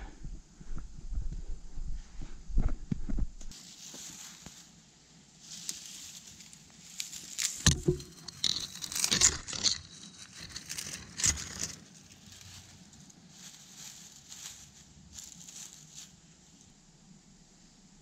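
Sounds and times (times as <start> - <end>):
dry twigs crackling and snapping: 5.5 - 16.2.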